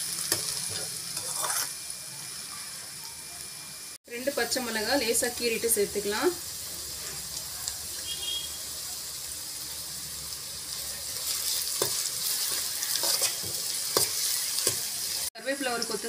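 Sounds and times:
onions sizzling in hot oil: 0:00.0 - 0:16.0
spoon stirring in a pan: 0:00.2 - 0:01.8, 0:11.1 - 0:15.2.

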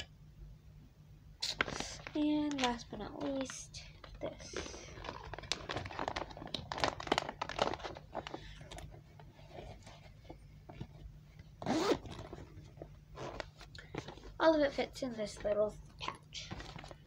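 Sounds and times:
clicks crinkles and rustling: 0:01.6 - 0:11.1, 0:15.2 - 0:17.0.

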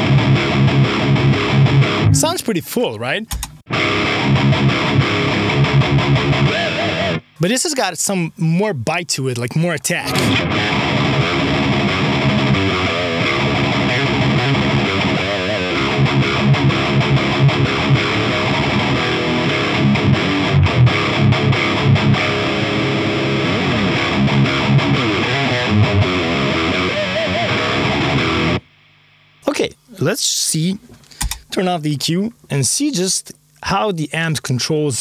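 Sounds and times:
distorted electric guitar riffing: 0:00.0 - 0:02.6, 0:03.2 - 0:07.6, 0:09.6 - 0:28.7.

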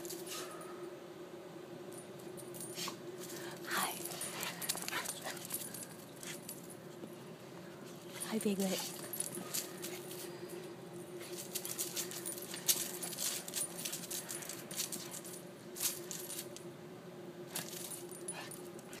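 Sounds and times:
faint steady hum: 0:00.0 - 0:19.0
dog tags jingling: 0:02.0 - 0:06.9, 0:08.0 - 0:16.6, 0:17.5 - 0:18.9.

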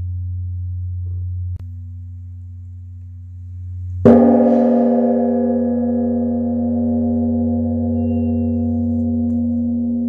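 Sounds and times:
large temple bell ringing: 0:04.0 - 0:10.0.

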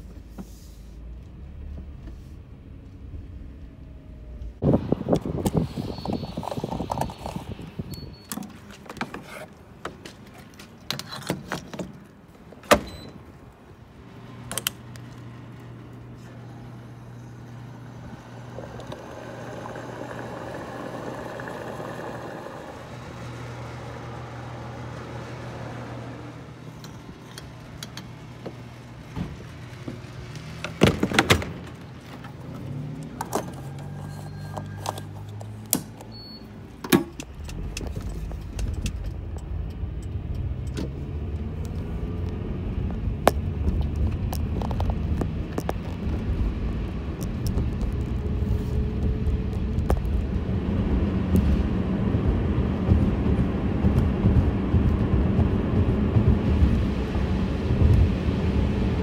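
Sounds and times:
fuel pump humming: 0:13.9 - 0:31.4, 0:48.3 - 0:59.0
fuel rushing through nozzle: 0:16.2 - 0:26.8.

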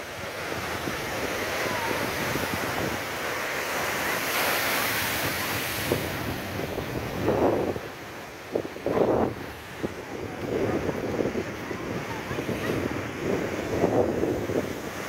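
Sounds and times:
surf breaking over rocks: 0:00.0 - 0:15.0
wind buffeting microphone: 0:00.0 - 0:15.0.

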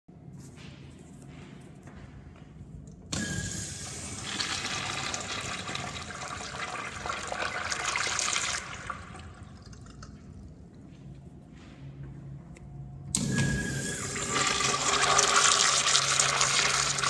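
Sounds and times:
urinal flushing: 0:03.1 - 0:10.8, 0:13.1 - 0:17.0.

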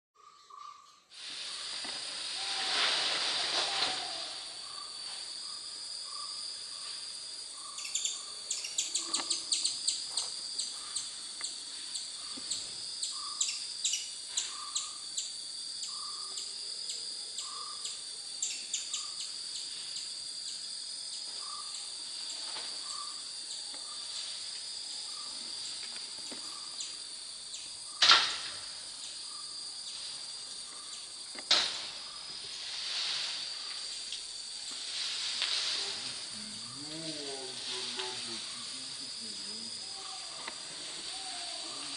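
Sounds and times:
high insect drone: 0:00.3 - 0:41.9.

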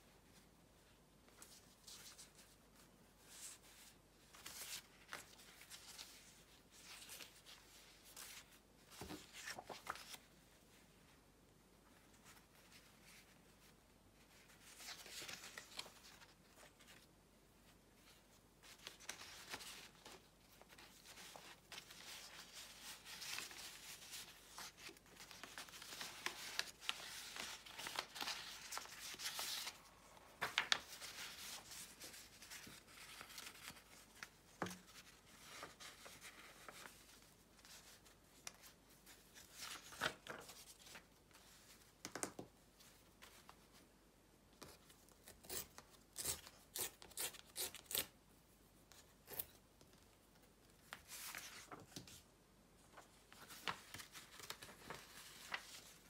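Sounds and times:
paper rustling and sliding: 0:18.7 - 0:38.0.

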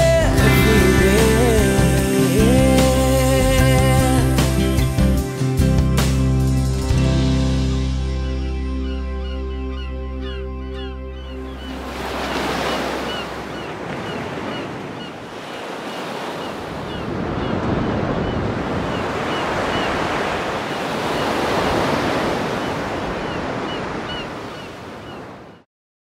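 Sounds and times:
ocean surf breaking on beach: 0:00.0 - 0:04.7, 0:11.7 - 0:25.5.

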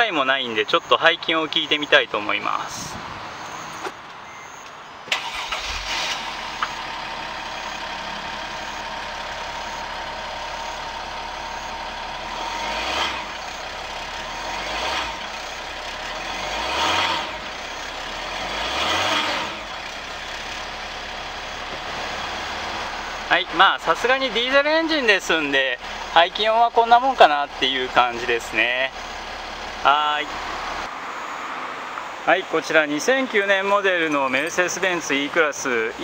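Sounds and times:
diesel engine idling: 0:03.3 - 0:31.2
engine revving: 0:05.1 - 0:08.9, 0:09.5 - 0:31.0.

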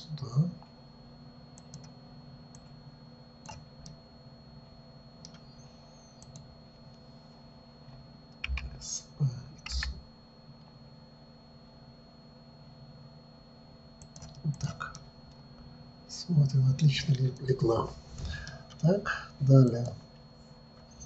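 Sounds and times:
faint high whine: 0:00.0 - 0:21.0
computer mouse clicks: 0:01.6 - 0:02.8, 0:03.4 - 0:04.0, 0:05.2 - 0:06.5, 0:08.4 - 0:08.7, 0:09.6 - 0:10.0, 0:14.0 - 0:15.0
keyboard key presses: 0:09.6 - 0:10.0.

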